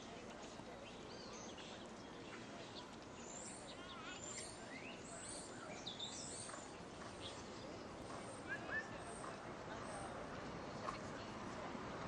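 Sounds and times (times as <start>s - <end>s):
faint outdoor hiss: 0.0s - 12.0s
small birds chirping: 0.8s - 10.1s.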